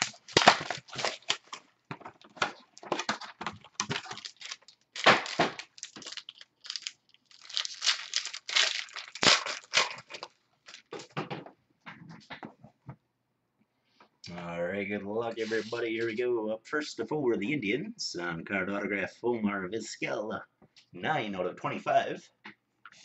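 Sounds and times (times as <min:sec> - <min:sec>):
foil wrapper crinkling and tearing: 0:00.0 - 0:11.0.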